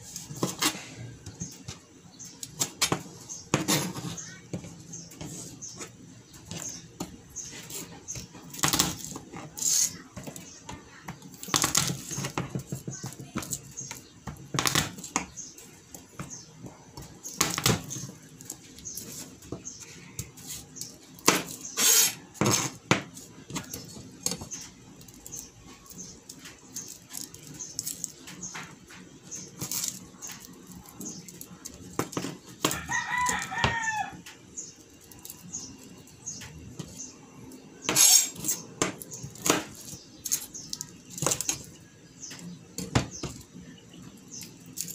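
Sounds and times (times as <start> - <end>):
knife chopping on plastic board: 21.2 - 21.6
rooster crowing: 32.7 - 34.3.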